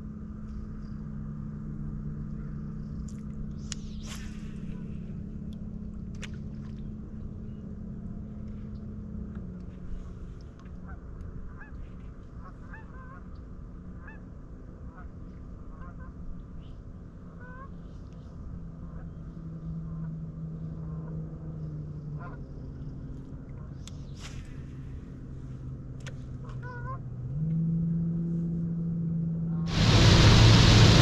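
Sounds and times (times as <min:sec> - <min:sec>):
distant geese honking: 0:10.8 - 0:13.3, 0:22.1 - 0:22.6
electric trolling motor humming: 0:29.7 - 0:31.0.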